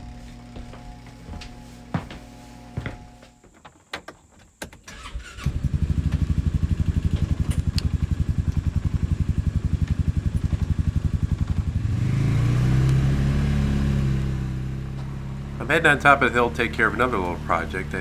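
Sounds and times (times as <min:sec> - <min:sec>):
engine starting and idling: 0:04.7 - 0:12.6
engine revving: 0:04.9 - 0:18.0.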